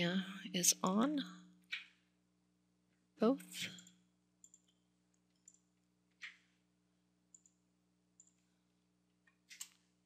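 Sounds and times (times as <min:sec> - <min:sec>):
computer mouse clicks: 0:01.6 - 0:02.1, 0:03.7 - 0:06.6, 0:07.3 - 0:07.6, 0:08.2 - 0:08.5, 0:09.2 - 0:09.9.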